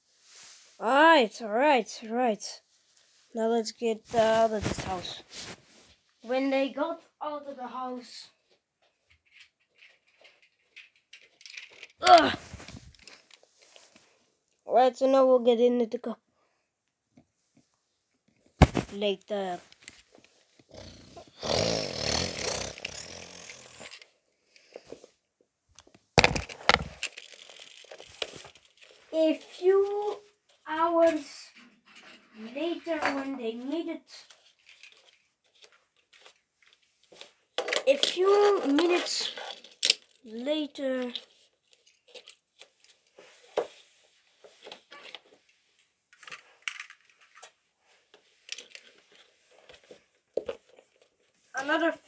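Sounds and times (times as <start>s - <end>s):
crackly rustling: 2.8s - 6.6s, 9.0s - 14.2s, 25.8s - 51.8s
knocks and rustling: 18.5s - 19.1s.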